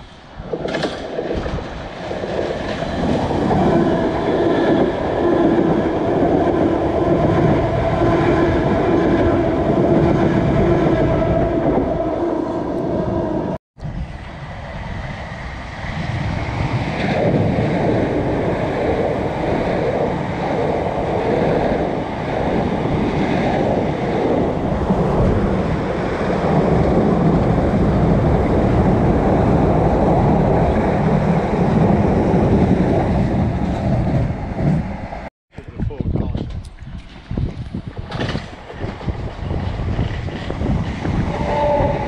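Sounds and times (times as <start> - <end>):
trains rumbling on tracks: 0.0 - 42.0
wind buffeting microphone: 0.0 - 42.0.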